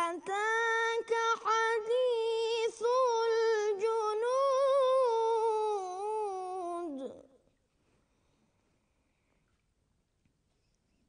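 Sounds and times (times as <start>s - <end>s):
person chanting recitation: 0.0s - 7.2s.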